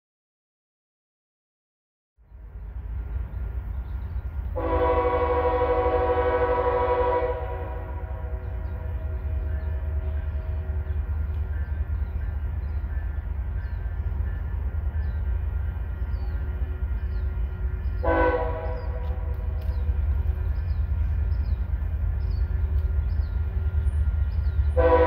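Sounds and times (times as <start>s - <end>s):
train horn chord: 4.6s - 11.0s, 13.8s - 25.0s.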